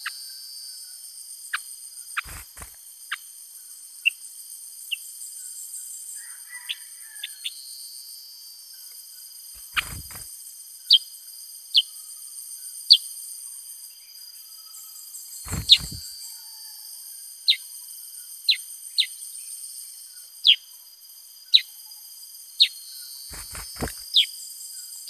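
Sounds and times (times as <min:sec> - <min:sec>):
insects hissing: 0:00.0 - 0:06.2, 0:08.6 - 0:16.3, 0:17.5 - 0:25.0
thump: 0:15.5 - 0:16.0.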